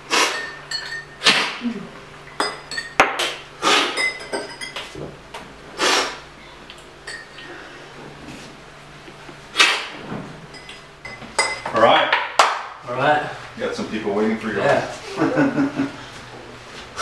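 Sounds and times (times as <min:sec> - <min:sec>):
metal spoons clinking on cups: 0:00.3 - 0:01.2, 0:02.3 - 0:03.0, 0:04.0 - 0:04.9, 0:07.0 - 0:07.5, 0:10.5 - 0:11.8.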